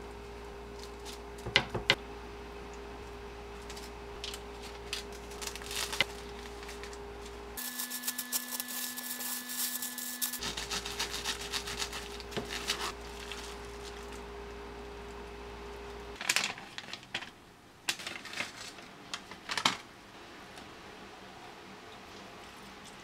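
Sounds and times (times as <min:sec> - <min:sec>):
crinkling plastic wrap: 0:03.6 - 0:14.3, 0:16.2 - 0:19.9
spatula scraping: 0:07.6 - 0:14.2.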